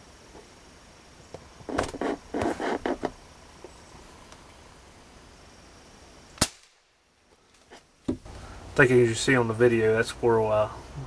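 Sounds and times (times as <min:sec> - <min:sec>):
camera rustling and knocking: 0:01.6 - 0:03.2.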